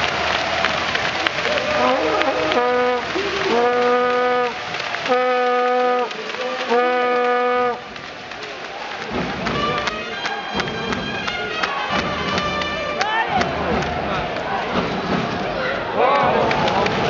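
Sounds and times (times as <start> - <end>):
crowd chatter: 0.0 - 17.0
people clapping: 0.0 - 17.0
horn blasts: 1.6 - 7.9, 9.4 - 13.3.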